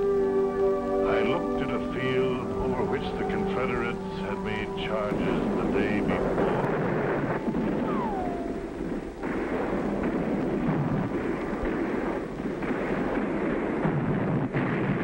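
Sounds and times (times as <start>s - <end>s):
falling whistle: 0.9s - 8.6s
cannon fire and explosions: 2.9s - 15.0s.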